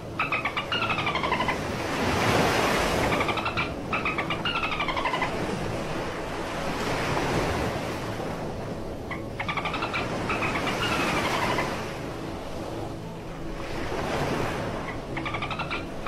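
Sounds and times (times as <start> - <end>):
beluga whale squeaky calls: 0.1 - 1.6, 3.0 - 5.3, 9.1 - 11.8, 14.9 - 16.0.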